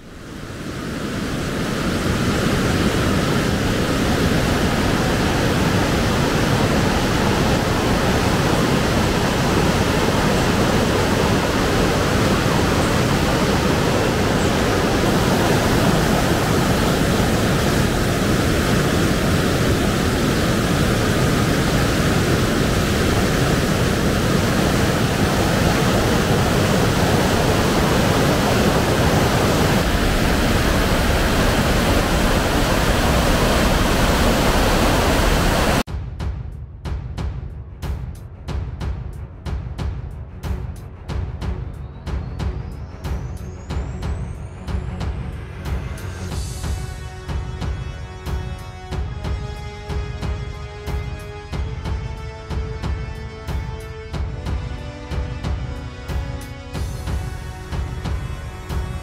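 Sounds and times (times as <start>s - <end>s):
river rushing over rapids: 0.0s - 35.9s.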